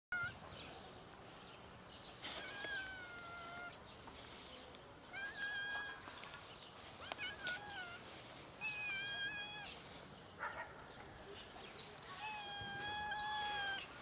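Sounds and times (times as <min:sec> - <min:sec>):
cat meowing: 0:00.1 - 0:00.4, 0:02.4 - 0:03.7, 0:08.6 - 0:09.8, 0:12.2 - 0:13.9.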